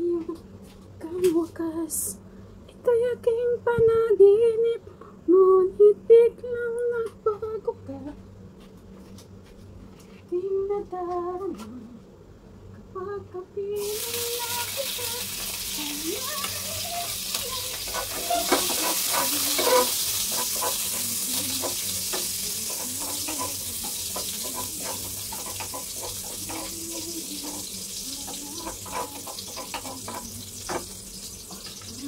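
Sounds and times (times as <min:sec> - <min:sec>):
onion and garlic sizzling: 0:13.8 - 0:32.0
wooden spatula scraping pan: 0:16.4 - 0:30.8.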